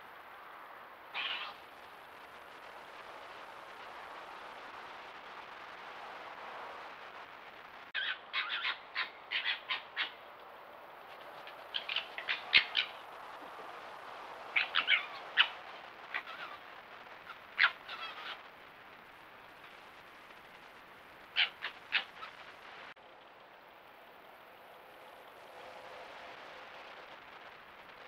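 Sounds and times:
steady hiss: 0.0s - 28.0s
foxes yelping and chattering: 1.1s - 1.6s, 8.0s - 10.4s, 11.0s - 13.1s, 14.5s - 18.5s, 21.3s - 22.5s.

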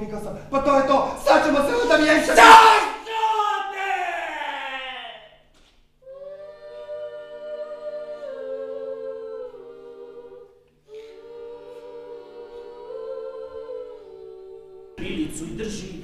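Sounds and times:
unaccompanied voices singing: 0.9s - 3.2s, 6.0s - 15.3s.

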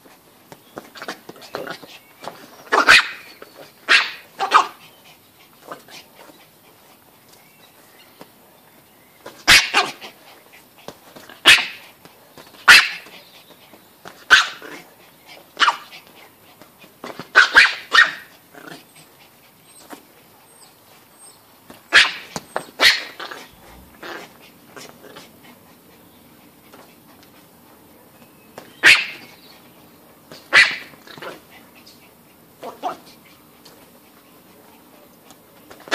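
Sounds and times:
small dog barking: 2.7s - 3.3s, 3.9s - 4.8s, 9.4s - 10.1s, 11.3s - 11.8s, 12.6s - 13.1s, 14.3s - 14.8s, 15.6s - 15.9s, 17.3s - 18.8s, 21.9s - 24.2s, 28.8s - 29.3s, 30.5s - 31.4s, 32.6s - 33.2s.

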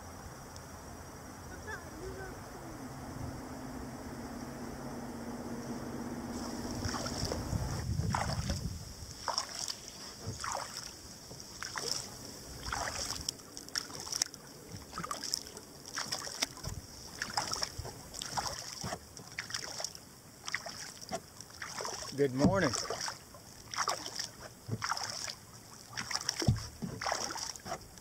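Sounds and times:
paddle splashing water: 1.5s - 28.0s
low rumble: 2.3s - 9.2s.

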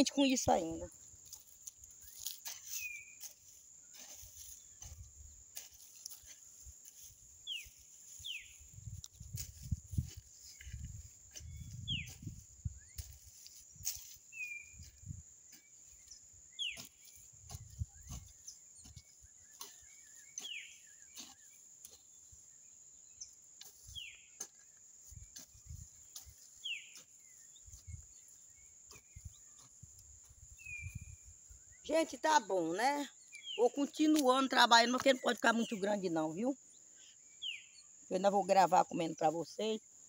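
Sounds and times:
hoe chopping and scraping soil: 16.7s - 22.0s.

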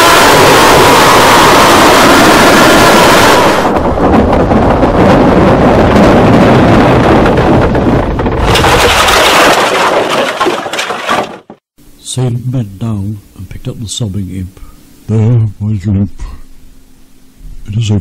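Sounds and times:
loud rumbling roar: 0.0s - 8.8s.

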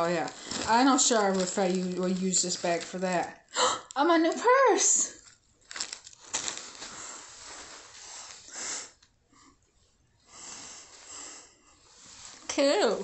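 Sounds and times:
rustling of purse strap handling: 5.2s - 8.0s.

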